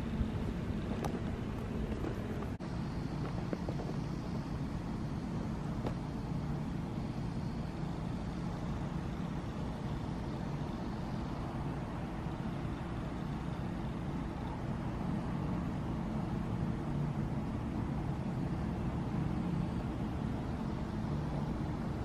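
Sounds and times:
distant road traffic rumble: 0:00.0 - 0:22.0.

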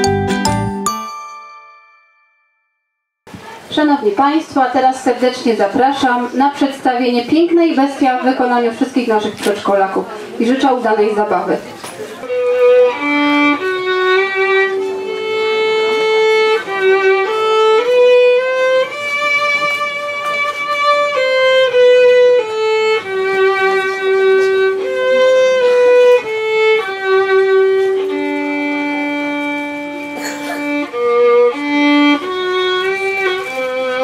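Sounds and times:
violin playing slow melody: 0:12.2 - 0:34.0.

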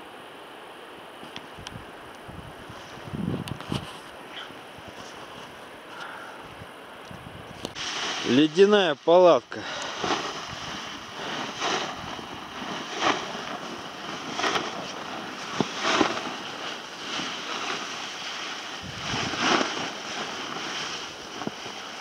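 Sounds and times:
outdoor rushing noise: 0:07.7 - 0:22.0.

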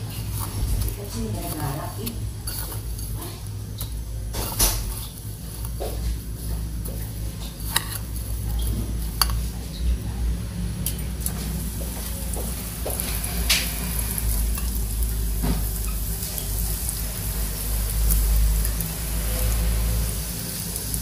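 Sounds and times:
metal spoon scraping ceramic plates: 0:00.0 - 0:05.6, 0:07.4 - 0:09.8
steady low hum: 0:00.0 - 0:21.0.

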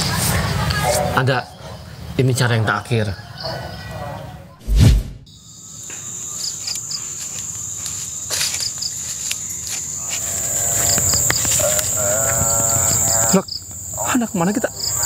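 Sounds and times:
insect chirps: 0:05.2 - 0:15.0
insects high-pitched whine: 0:05.2 - 0:15.0.

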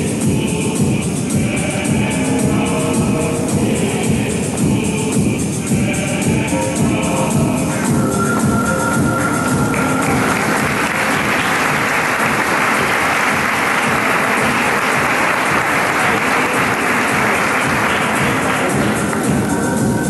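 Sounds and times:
background music: 0:00.0 - 0:20.0
audience applauding: 0:09.1 - 0:19.6.

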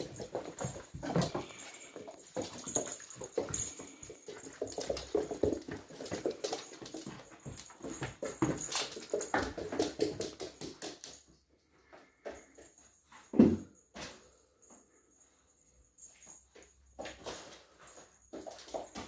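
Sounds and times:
claws clicking on laminate floor: 0:00.0 - 0:11.3.

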